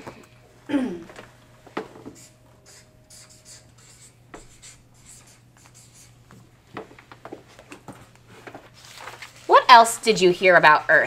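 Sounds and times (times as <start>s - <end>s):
felt-tip marker scratching on paper: 2.1s - 6.2s.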